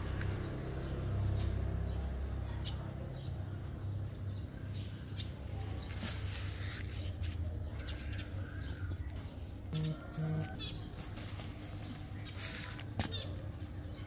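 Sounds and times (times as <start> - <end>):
small birds chirping: 0.0 - 14.0
rustling: 9.8 - 13.7.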